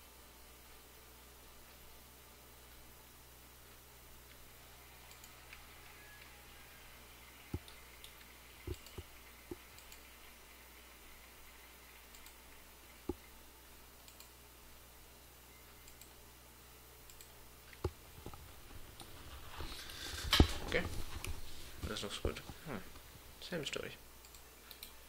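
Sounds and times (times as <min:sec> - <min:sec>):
faint low hum: 0:00.0 - 0:25.0
computer mouse clicks: 0:05.0 - 0:06.3, 0:07.4 - 0:10.2, 0:12.0 - 0:13.3, 0:14.0 - 0:14.4, 0:15.8 - 0:16.2, 0:17.0 - 0:18.4, 0:24.2 - 0:25.0.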